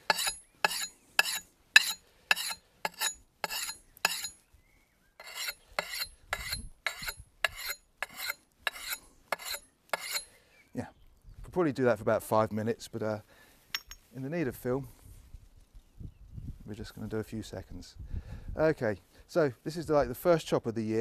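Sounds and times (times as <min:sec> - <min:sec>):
sharpening stone rasping on axe: 0:00.0 - 0:04.4, 0:05.2 - 0:10.3.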